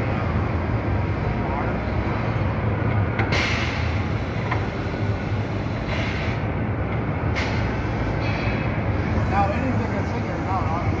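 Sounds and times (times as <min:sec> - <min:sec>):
compressed air hisses: 0:05.6 - 0:06.4.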